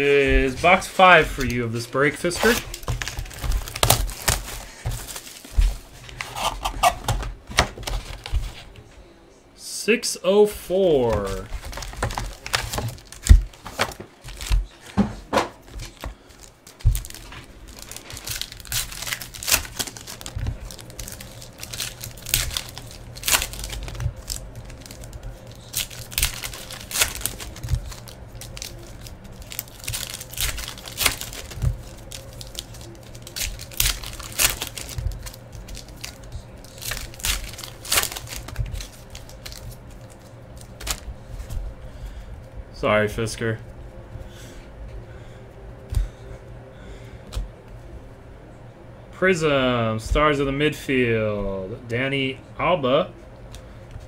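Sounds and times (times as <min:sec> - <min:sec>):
foil packs tearing and crinkling: 0:00.4 - 0:07.2, 0:11.0 - 0:15.0, 0:15.7 - 0:41.5.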